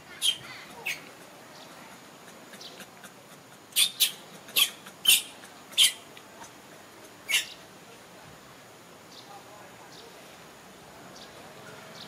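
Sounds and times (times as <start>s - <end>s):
infant monkey squealing: 0.2s - 1.3s, 1.9s - 6.6s, 7.3s - 7.5s.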